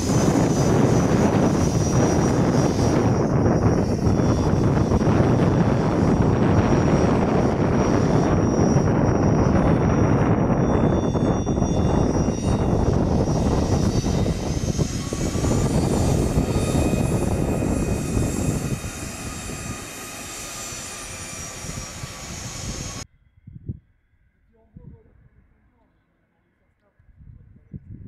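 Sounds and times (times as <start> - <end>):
jet engines rumbling with turbine whine: 0.0 - 23.1.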